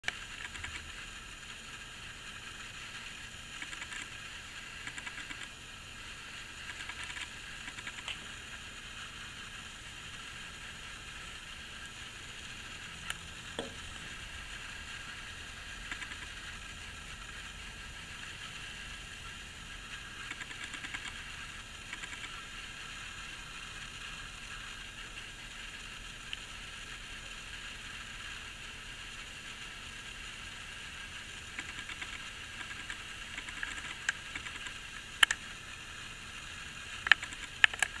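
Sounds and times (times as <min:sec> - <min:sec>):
sharp clicks: 0:00.0 - 0:00.9, 0:03.6 - 0:04.2, 0:04.8 - 0:05.5, 0:06.6 - 0:08.2, 0:15.8 - 0:16.3, 0:20.2 - 0:21.2, 0:21.9 - 0:22.4, 0:31.5 - 0:35.4, 0:37.0 - 0:38.0
steady hiss: 0:00.0 - 0:38.0.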